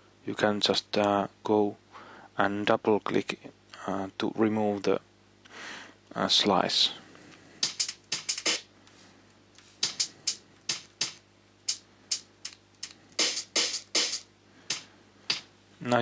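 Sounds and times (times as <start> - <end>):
snare drum hits: 7.6 - 8.6, 9.8 - 12.2, 13.2 - 15.5
cymbal-like hits: 13.2 - 15.5.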